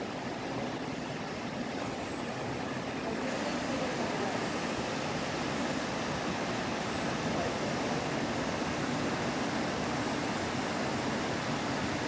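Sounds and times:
water rushing over boulders: 0.0 - 12.0.

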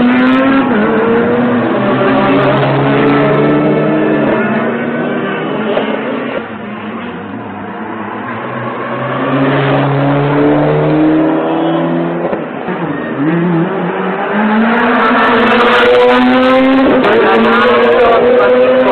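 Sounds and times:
rally car engine accelerating: 0.0 - 18.9.

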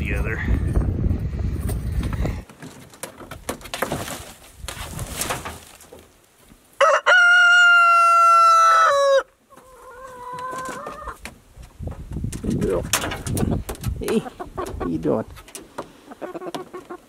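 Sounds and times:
rooster crowing: 6.8 - 9.3.

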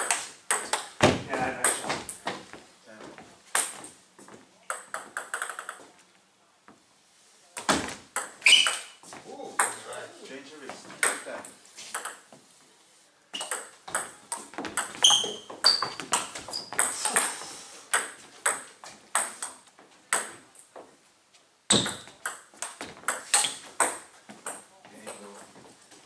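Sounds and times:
table tennis ball hits: 4.7 - 5.8, 7.6 - 8.9, 11.0 - 11.3, 11.9 - 12.2, 13.4 - 20.4, 21.7 - 25.3
shoes squeaking on wooden floor: 7.7 - 11.1, 13.3 - 17.5, 20.7 - 26.0.

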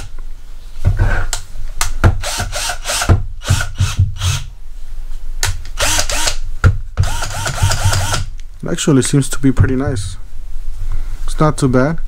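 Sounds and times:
cordless drill motor bursts: 2.2 - 4.5, 5.8 - 6.4, 7.0 - 8.3
sharp drill clicks: 2.2 - 4.5, 5.8 - 6.4, 7.0 - 8.3.

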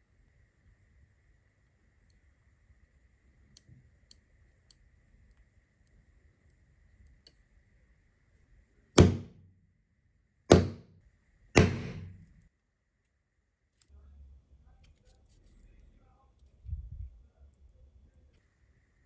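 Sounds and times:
hammer striking hollow punch: 9.0 - 9.5, 10.5 - 10.9, 11.6 - 12.3.

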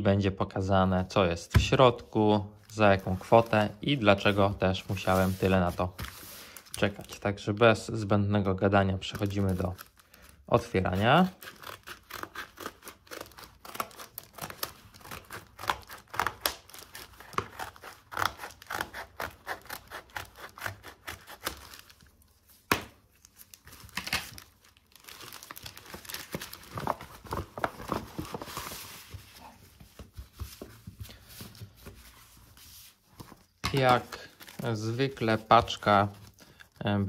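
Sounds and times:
plastic crinkling: 9.0 - 12.2, 23.1 - 32.0.

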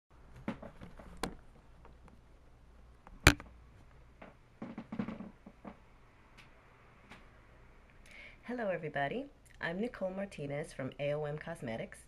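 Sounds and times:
camera handling clicks and knocks: 3.3 - 3.5
soft knocks and rustles: 4.2 - 5.8.

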